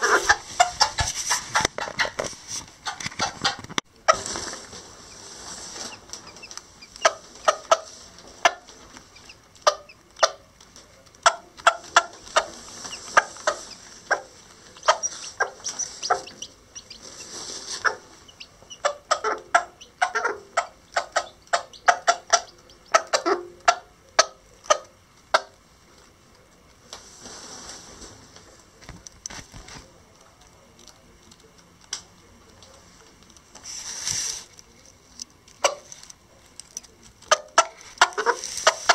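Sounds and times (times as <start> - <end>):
hen clucking: 0.0 - 4.3, 5.0 - 25.6, 37.3 - 38.9.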